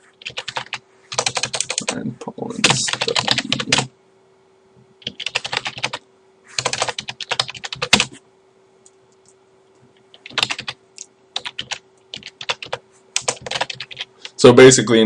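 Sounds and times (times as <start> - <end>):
faint steady hum: 0.0 - 15.0
keyboard typing: 0.2 - 2.0, 2.6 - 3.9, 5.0 - 6.0, 6.6 - 8.2, 10.0 - 10.8, 11.4 - 14.4.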